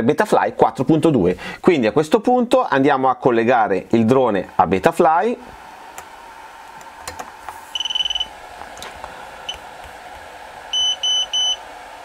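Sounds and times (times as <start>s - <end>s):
electronic beeps: 7.8s - 8.3s, 10.8s - 11.6s.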